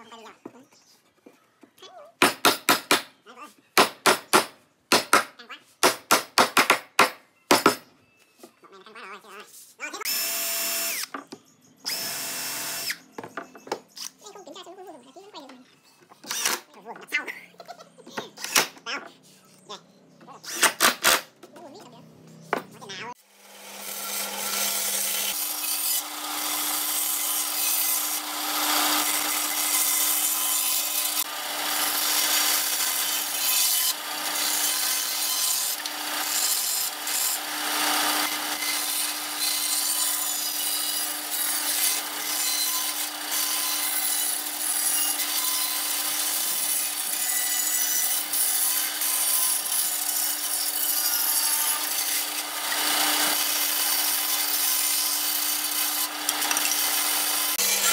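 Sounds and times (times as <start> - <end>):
band saw cutting wood: 11.9 - 13.1, 20.4 - 21.3, 22.5 - 57.9.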